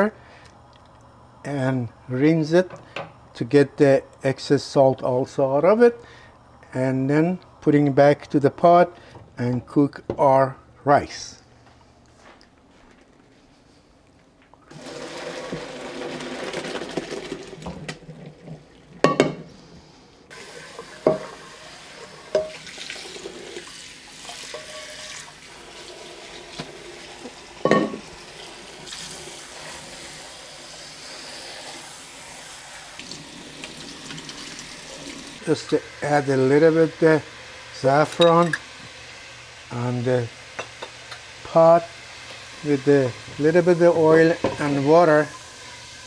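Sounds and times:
tap running: 14.5 - 18.4, 20.3 - 23.6, 25.8 - 28.1
water pouring into colander: 14.7 - 19.0, 20.3 - 27.6, 28.2 - 35.5
metal pot clanking on sink: 19.0 - 19.4, 21.0 - 21.4, 22.3 - 22.6, 27.6 - 28.0.

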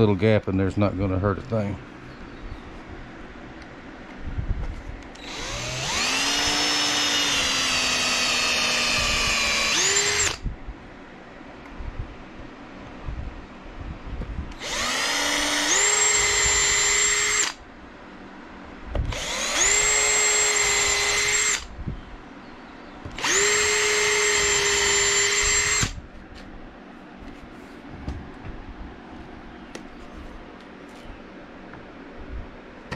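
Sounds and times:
cordless drill whining: 5.1 - 10.4, 14.5 - 17.6, 19.0 - 21.7, 23.1 - 26.0.

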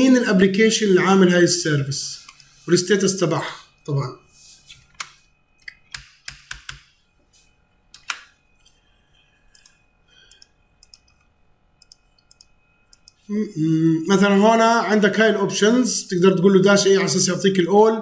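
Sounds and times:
computer keyboard keystrokes: 5.0 - 6.9.

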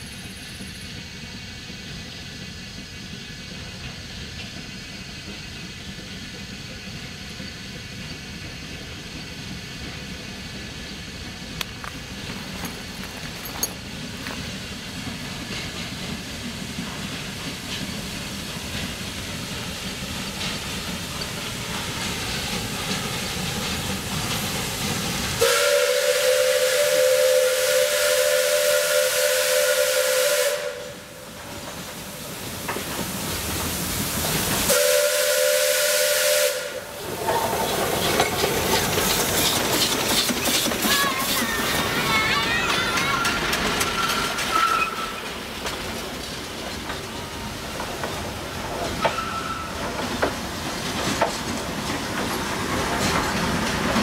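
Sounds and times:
steam locomotive running: 0.0 - 54.0
steam whistle blast: 25.4 - 31.2, 34.7 - 36.9.

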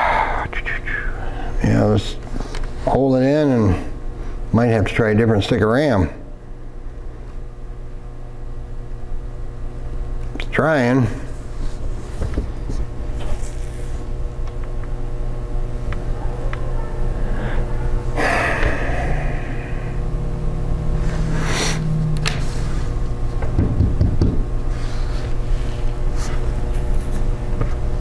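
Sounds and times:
steady low hum: 0.0 - 28.0
breathy exhales: 17.2 - 20.1, 21.0 - 22.0.

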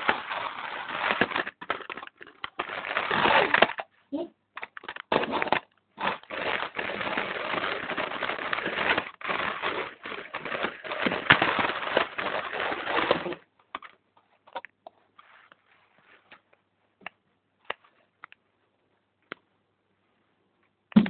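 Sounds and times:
toy car rattling on plastic track: 0.0 - 3.8, 4.6 - 13.4.

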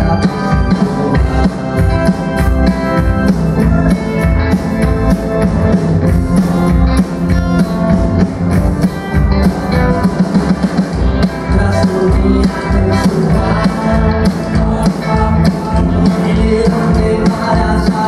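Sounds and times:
double bass: 0.0 - 18.0
drum kit beat: 0.0 - 18.0
electric guitar: 0.0 - 18.0.

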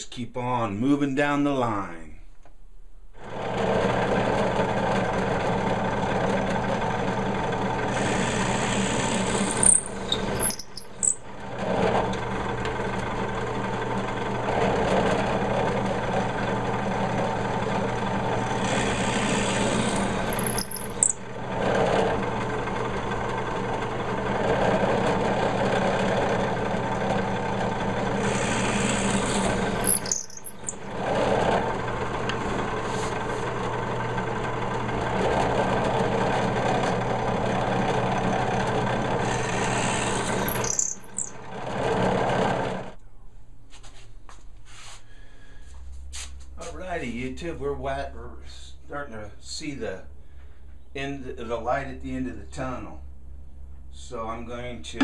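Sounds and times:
drill bit boring wood: 3.2 - 43.0
drill press motor running: 3.2 - 43.0
high drill squeal: 7.9 - 11.3, 18.4 - 21.3, 28.2 - 31.0, 39.2 - 41.5.

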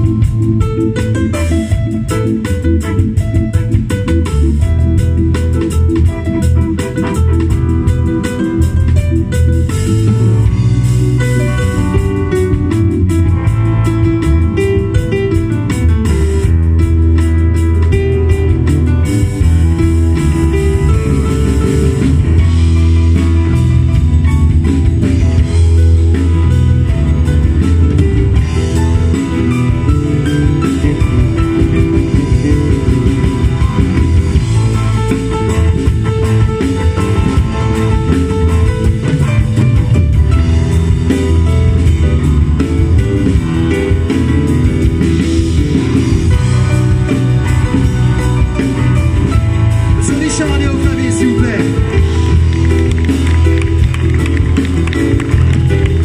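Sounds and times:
drum kit: 0.0 - 56.0
electric bass guitar: 0.0 - 56.0
electric guitar: 0.0 - 56.0
organ keyboard: 0.0 - 56.0.

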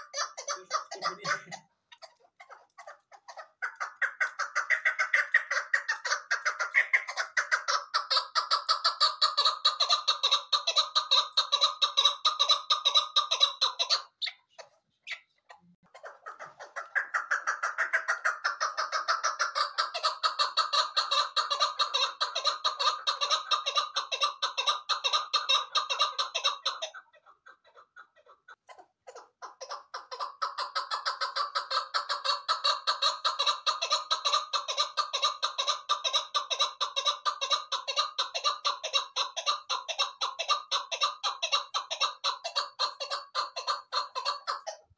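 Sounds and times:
partridge chuck calls: 0.0 - 44.9.

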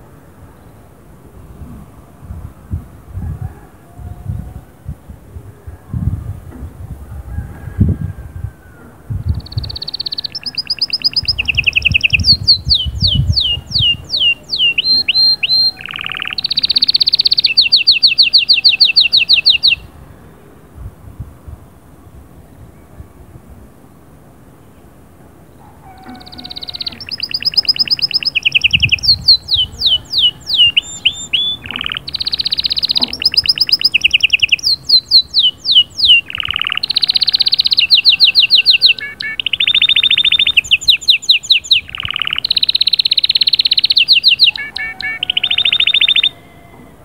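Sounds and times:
canary singing trills: 9.2 - 19.9, 25.6 - 46.8.

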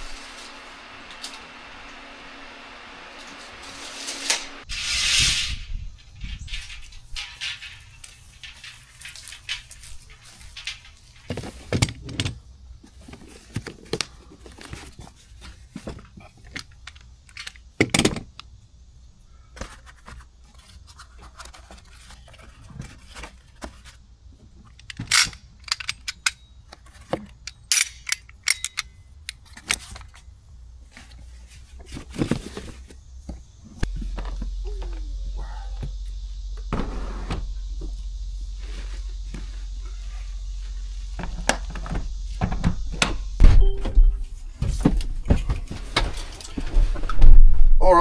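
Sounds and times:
tools and metal parts clicking: 16.4 - 18.2, 24.7 - 30.2.

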